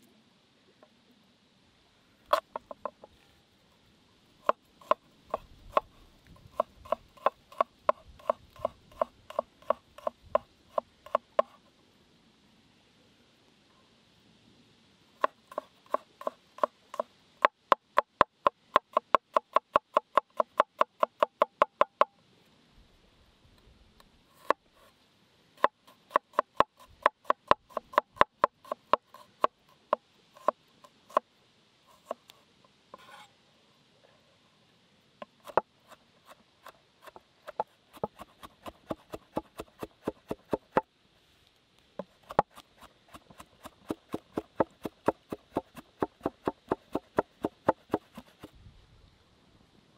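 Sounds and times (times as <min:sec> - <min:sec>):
cleaver chopping on wooden board: 0:06.5 - 0:11.5, 0:37.1 - 0:40.8, 0:42.0 - 0:48.5.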